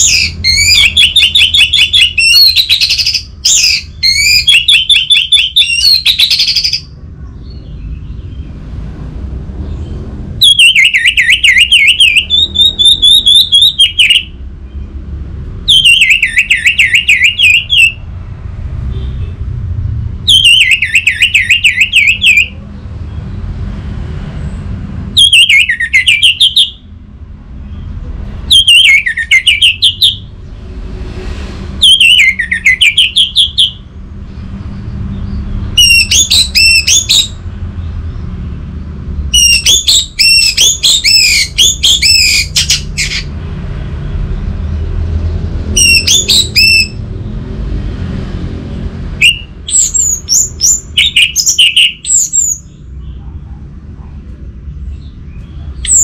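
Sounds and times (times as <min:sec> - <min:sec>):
bird singing whistled phrases: 0:00.0 - 0:07.6, 0:10.4 - 0:14.3, 0:15.7 - 0:18.0, 0:20.3 - 0:22.6, 0:25.2 - 0:26.8, 0:28.5 - 0:30.2, 0:31.8 - 0:33.8, 0:35.8 - 0:37.4, 0:39.3 - 0:43.2, 0:45.8 - 0:47.0, 0:49.2 - 0:52.7.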